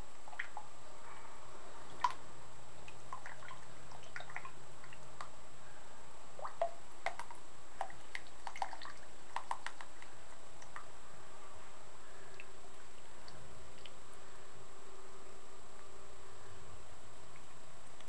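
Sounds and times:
small water splashes and drips: 0.3s - 0.7s, 2.8s - 5.3s, 6.4s - 10.9s.

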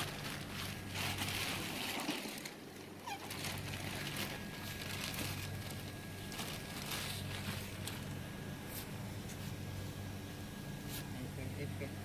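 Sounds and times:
plastic sheeting rustling: 0.0s - 9.5s
steady low hum: 0.0s - 12.0s.

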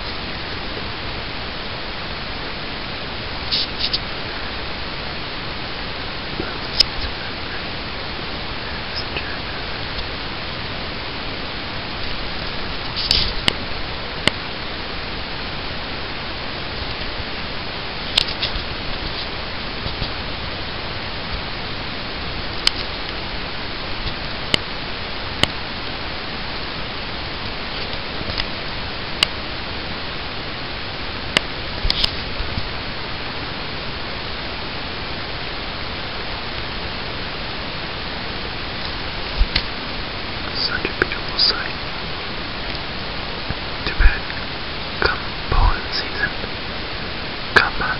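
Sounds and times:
steady hiss: 0.0s - 47.9s.

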